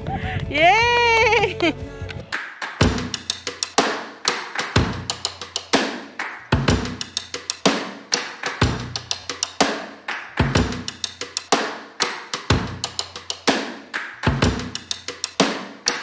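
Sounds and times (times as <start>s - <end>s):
snare and percussion hits: 2.3s - 16.0s
bass drum: 2.8s - 3.6s, 4.8s - 5.4s, 6.5s - 7.4s, 8.6s - 9.4s, 10.4s - 11.2s, 12.5s - 13.3s, 14.2s - 15.0s.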